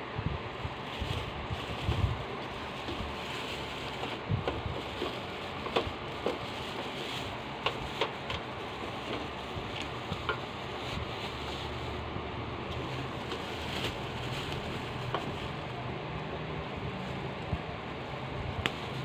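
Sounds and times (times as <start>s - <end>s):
steady background hiss: 0.0s - 19.0s
plastic wrapping crinkling: 0.6s - 15.9s, 16.6s - 19.0s.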